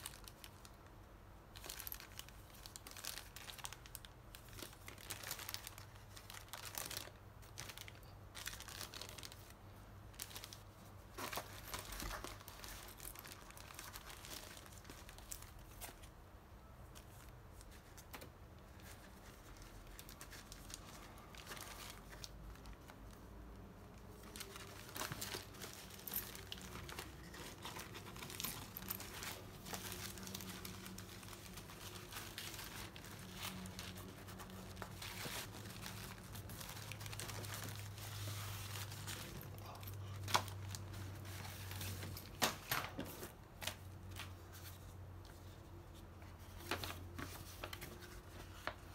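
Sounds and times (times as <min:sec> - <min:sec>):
plastic bags crinkling: 0:00.0 - 0:00.8, 0:01.5 - 0:16.1, 0:18.6 - 0:44.3.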